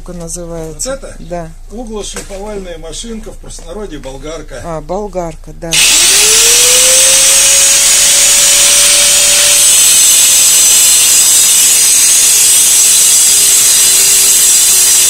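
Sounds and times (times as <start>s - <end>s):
electric angle grinder running: 5.7s - 15.0s.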